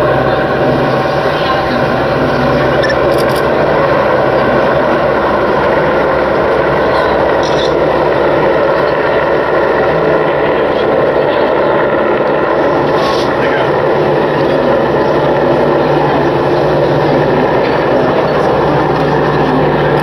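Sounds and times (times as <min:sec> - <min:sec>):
helicopter rotor and turbine noise: 0:00.0 - 0:20.0.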